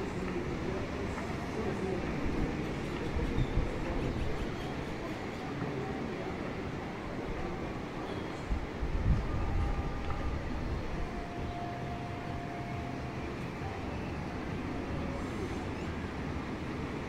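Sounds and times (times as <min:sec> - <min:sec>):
faint distant voices: 0:00.0 - 0:17.0
steady background wash: 0:00.0 - 0:17.0
wind buffeting microphone: 0:07.0 - 0:11.6.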